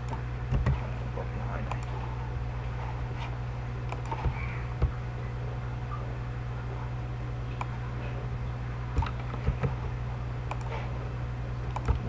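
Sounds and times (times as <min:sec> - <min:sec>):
computer mouse clicking: 0:00.0 - 0:00.8, 0:01.6 - 0:02.0, 0:03.9 - 0:04.9, 0:09.0 - 0:09.8, 0:10.4 - 0:10.8, 0:11.7 - 0:12.0
low electrical hum: 0:00.0 - 0:12.0.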